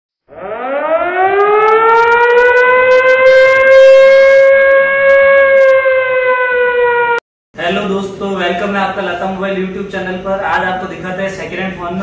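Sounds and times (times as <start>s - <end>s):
siren wailing: 0.3s - 7.2s.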